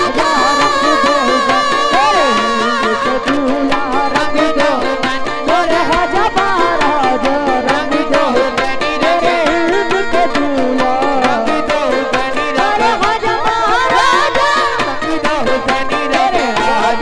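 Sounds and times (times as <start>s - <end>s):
hand-drum beat: 0.0s - 17.0s
harmonium: 0.0s - 17.0s
man singing along: 0.0s - 17.0s.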